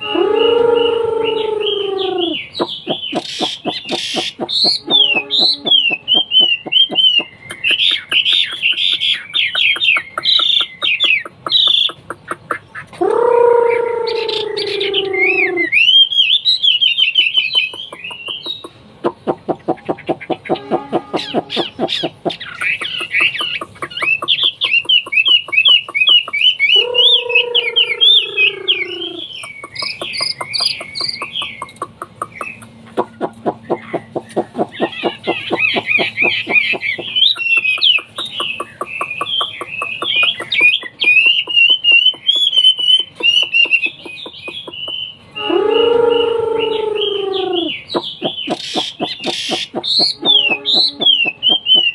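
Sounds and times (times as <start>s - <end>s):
bird singing whistled phrases: 0.0s - 9.6s, 14.0s - 18.7s, 34.8s - 51.9s
bird fast ticking notes: 0.0s - 51.9s.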